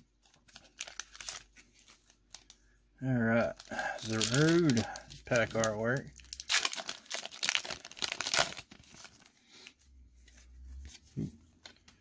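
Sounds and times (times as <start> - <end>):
foil wrapper tearing and crinkling: 0.4 - 2.6, 3.5 - 9.3.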